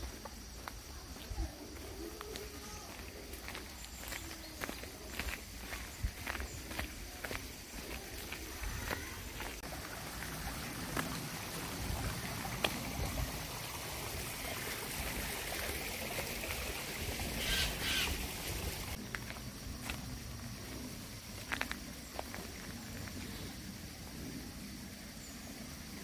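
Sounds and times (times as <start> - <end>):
footsteps on dirt trail: 0.0 - 12.8, 18.9 - 23.5
stream trickling: 0.0 - 26.0
bird call: 17.4 - 18.2.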